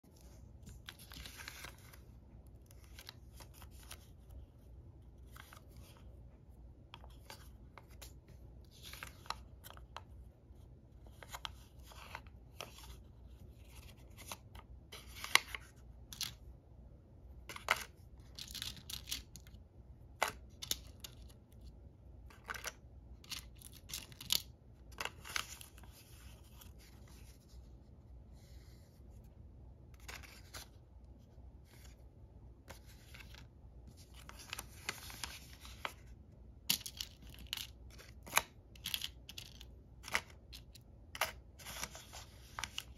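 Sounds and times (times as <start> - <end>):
paper rustling and crinkling: 0.0 - 4.6, 29.9 - 42.9.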